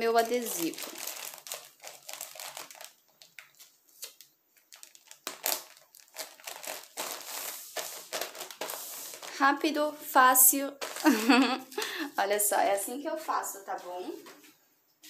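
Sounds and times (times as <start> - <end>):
plastic bag crinkling: 0.0 - 9.8, 10.5 - 12.8.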